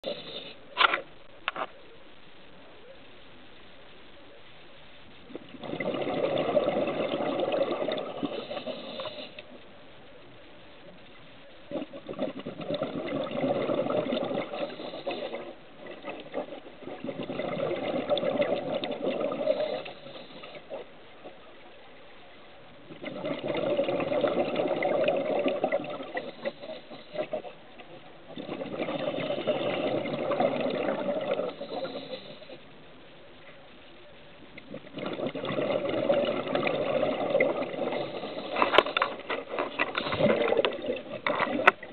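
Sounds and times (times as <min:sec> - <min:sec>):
underwater breath bubbling: 0:00.0 - 0:00.8, 0:05.2 - 0:09.6, 0:11.7 - 0:21.4, 0:22.8 - 0:32.7, 0:34.6 - 0:41.9.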